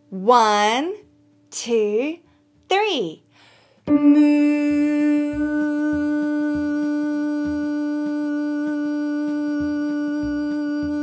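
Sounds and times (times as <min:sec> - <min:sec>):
soft backing music: 0:00.0 - 0:11.0
woman singing a long note: 0:03.9 - 0:11.0.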